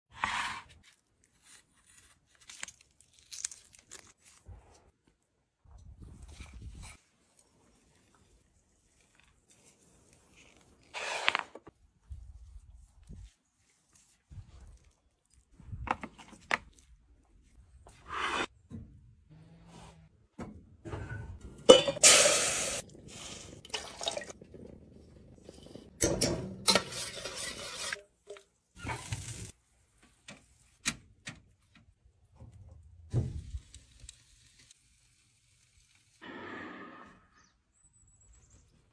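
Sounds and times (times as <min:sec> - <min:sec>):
dishes and metal pot clinking: 0:20.9 - 0:22.2.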